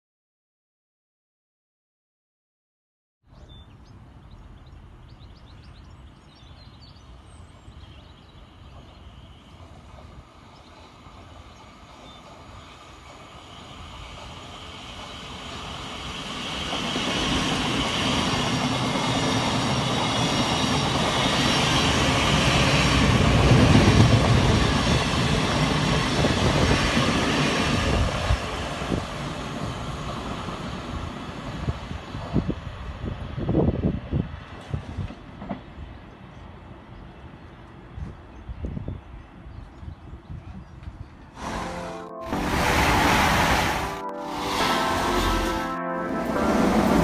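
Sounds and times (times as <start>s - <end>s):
train wheels on rails: 8.5s - 36.4s, 42.4s - 45.5s.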